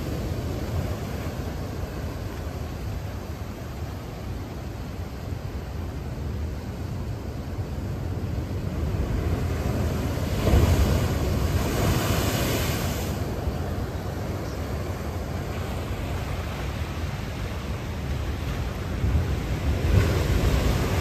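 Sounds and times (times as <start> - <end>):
ocean surf rumble: 0.0 - 21.0
wave breaking: 9.4 - 13.5.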